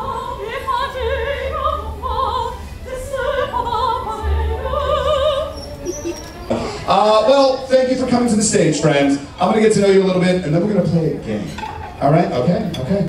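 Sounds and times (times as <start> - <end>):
opera-style singing voice: 0.0 - 8.2.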